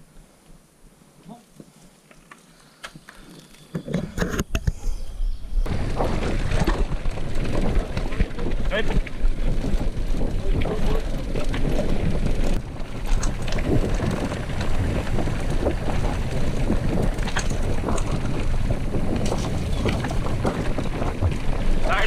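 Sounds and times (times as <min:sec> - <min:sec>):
bike clicks and rattles: 0:01.6 - 0:04.8, 0:05.7 - 0:22.0
wind buffeting microphone: 0:03.9 - 0:22.0
tyres rumbling on dirt: 0:05.6 - 0:22.0.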